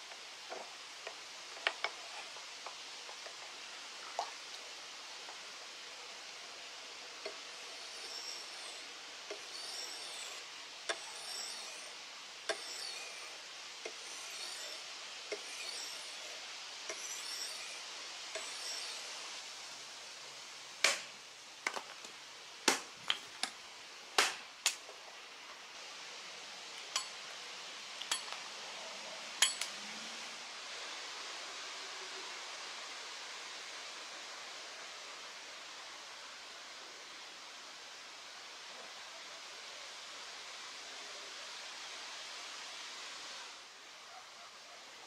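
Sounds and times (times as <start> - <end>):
blade scraping on whetstone: 7.3 - 19.1
hatchet chopping wood: 20.8 - 21.1, 22.7 - 23.2, 24.2 - 24.8.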